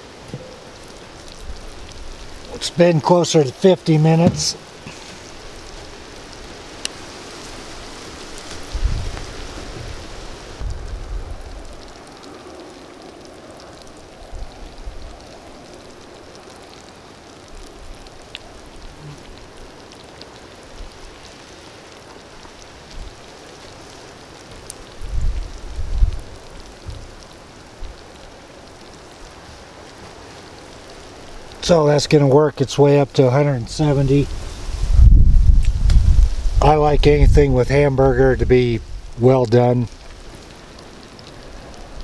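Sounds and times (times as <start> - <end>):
faint ticks and crackles: 0.0 - 42.0
dull low thumps: 4.2 - 5.0.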